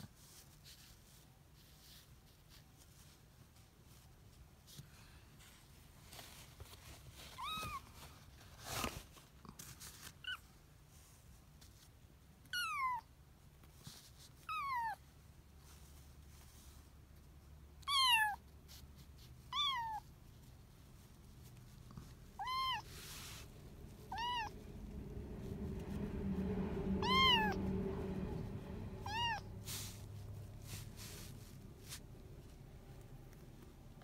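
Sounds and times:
kitten meowing: 17.8s - 18.4s, 19.5s - 20.0s, 22.3s - 23.0s, 24.0s - 24.6s, 27.0s - 27.6s, 29.0s - 29.4s.

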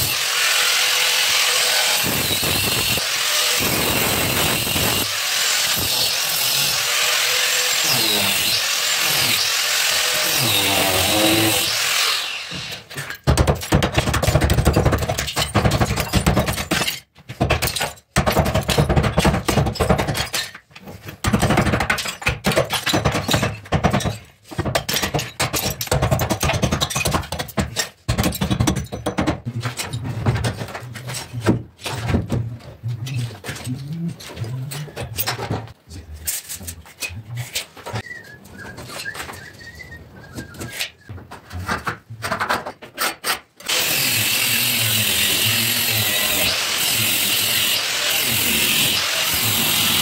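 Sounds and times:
angle grinder cutting brick: 0.0s - 13.2s, 43.6s - 50.0s.

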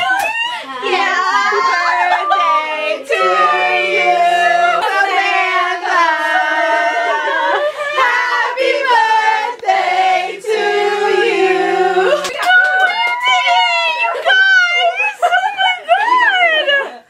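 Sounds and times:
young women singing together: 0.0s - 16.3s.

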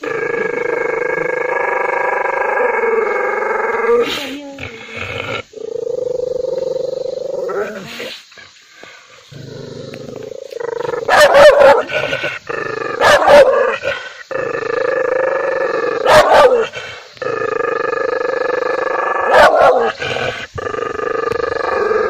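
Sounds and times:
dog barking loudly: 11.1s - 11.9s, 13.0s - 13.7s, 16.0s - 16.7s, 19.3s - 19.9s.

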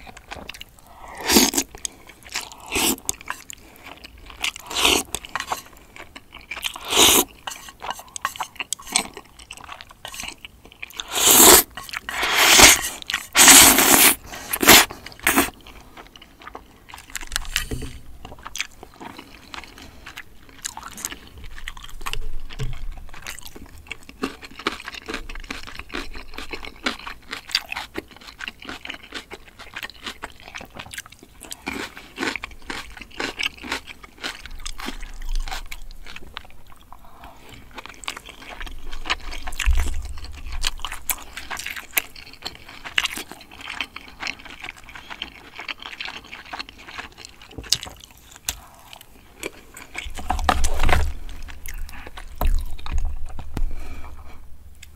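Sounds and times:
soft chewing: 0.0s - 54.9s
slurping noodles: 0.8s - 3.5s, 6.7s - 8.5s, 11.0s - 15.6s.

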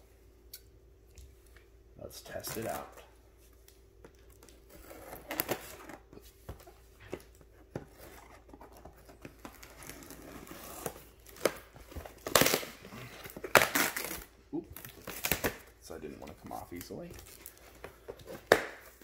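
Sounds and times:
cardboard packaging rustling: 4.2s - 19.0s
cardboard tearing: 4.6s - 6.0s, 7.9s - 15.6s.

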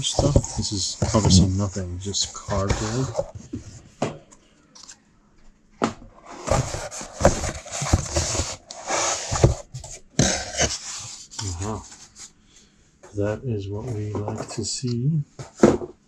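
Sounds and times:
cardboard scraping: 0.0s - 3.8s, 6.2s - 12.3s.

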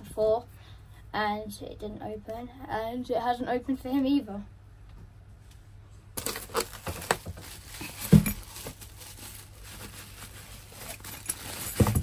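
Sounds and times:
bubble wrap crinkling: 6.2s - 12.0s.

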